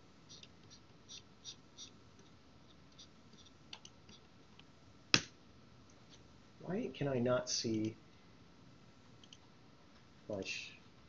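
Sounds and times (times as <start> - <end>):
keyboard and mouse clicks: 3.0 - 5.3, 9.2 - 9.4
sharp loud click: 5.1 - 5.3.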